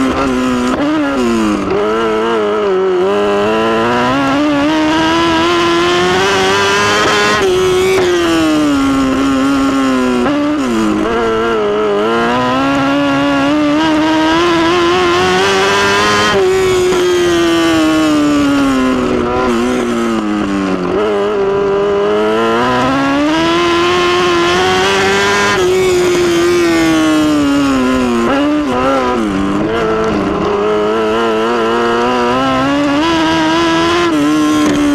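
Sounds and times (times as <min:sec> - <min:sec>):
race car engine revving: 0:00.0 - 0:34.9.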